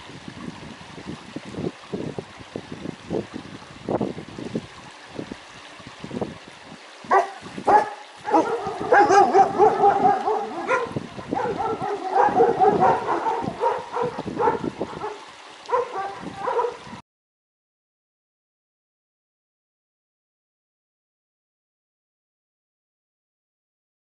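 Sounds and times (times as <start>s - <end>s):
puppies whining and yipping: 7.1s - 15.2s.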